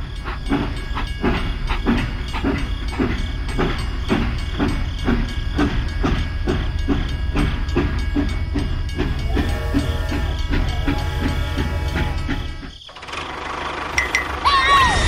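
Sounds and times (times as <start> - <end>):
toy train chugging: 0.0 - 15.0
motor hum and whine: 9.2 - 15.0.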